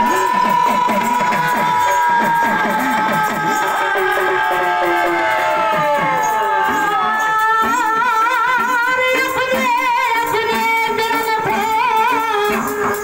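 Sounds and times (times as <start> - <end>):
instrumental accompaniment: 0.0 - 13.0
man singing through loudspeaker: 0.0 - 13.0.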